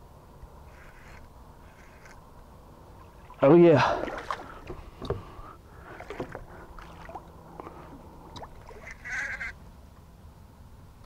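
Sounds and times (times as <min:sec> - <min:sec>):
small water splashes: 0:02.9 - 0:09.2.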